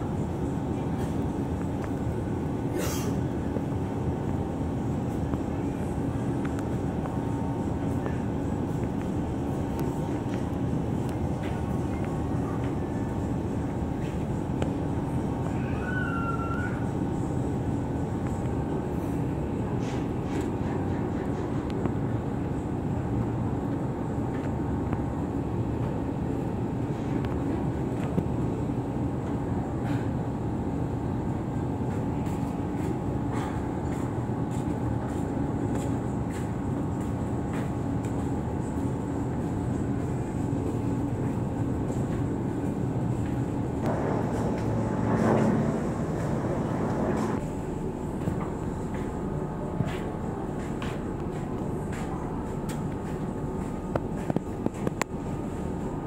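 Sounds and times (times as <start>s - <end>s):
ship engines droning: 30.3s - 56.0s
wind and water rushing: 43.9s - 47.4s.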